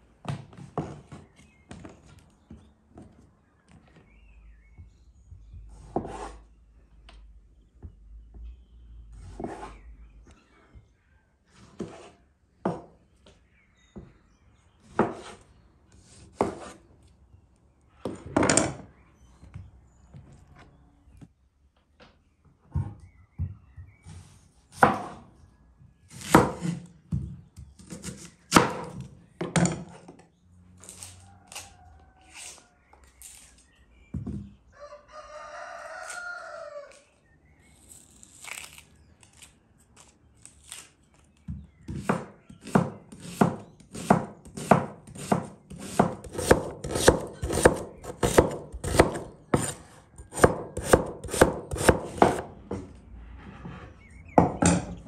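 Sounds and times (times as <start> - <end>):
knife cutting onion on wooden board: 5.7 - 6.5, 9.2 - 9.8, 11.6 - 12.9, 14.8 - 15.4, 16.0 - 16.8, 24.7 - 25.2, 26.1 - 26.9, 27.8 - 30.0, 41.8 - 52.5
rooster crowing: 31.2 - 32.8, 34.7 - 37.0.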